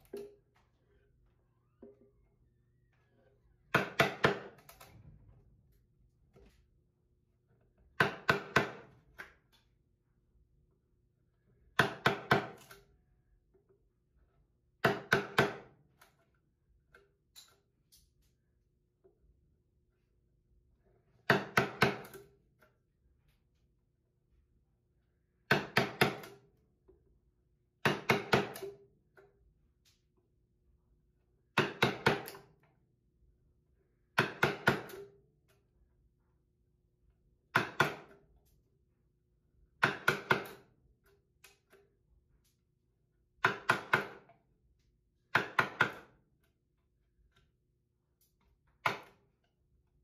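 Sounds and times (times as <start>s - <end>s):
wooden mallet striking chisel: 3.7s - 4.8s, 7.8s - 9.4s, 11.7s - 12.8s, 14.8s - 15.8s, 21.2s - 22.4s, 25.5s - 26.5s, 27.8s - 28.9s, 31.5s - 32.4s, 34.2s - 35.2s, 37.5s - 38.2s, 39.8s - 40.7s, 43.4s - 44.3s, 45.3s - 46.1s.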